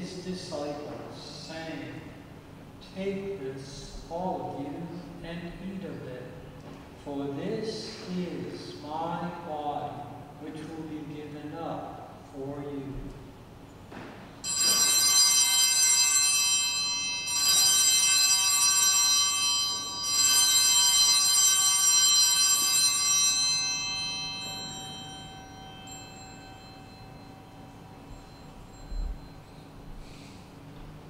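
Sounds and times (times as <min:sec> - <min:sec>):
altar bells ringing: 0:13.7 - 0:31.0.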